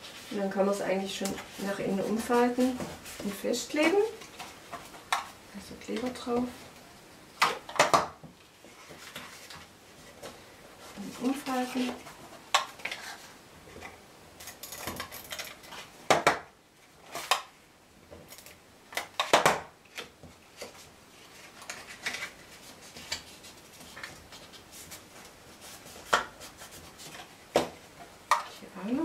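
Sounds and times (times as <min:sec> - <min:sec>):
cardstock rustling and rubbing: 0:08.6 - 0:13.4, 0:20.4 - 0:28.6.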